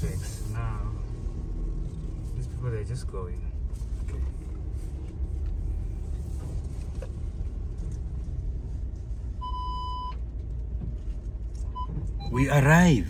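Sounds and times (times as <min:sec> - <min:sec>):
vehicle engine and tyres rumbling: 0:00.0 - 0:13.0.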